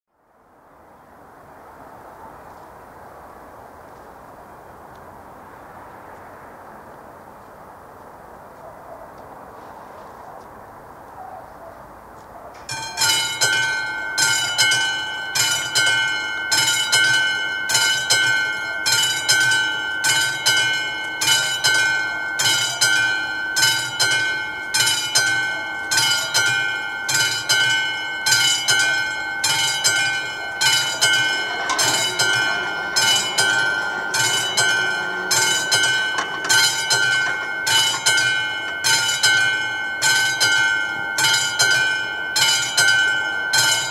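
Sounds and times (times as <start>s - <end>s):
level crossing warning bell: 12.6s - 43.9s.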